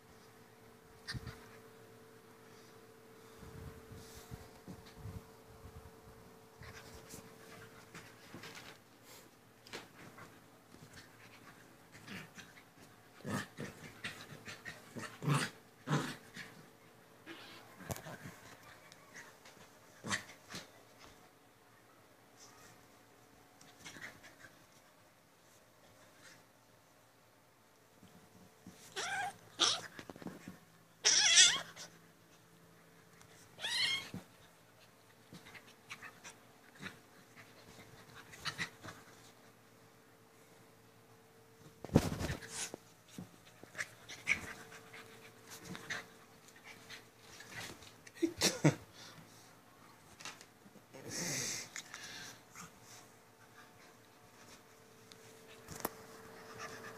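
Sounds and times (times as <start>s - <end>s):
kittens meowing: 33.6s - 34.2s.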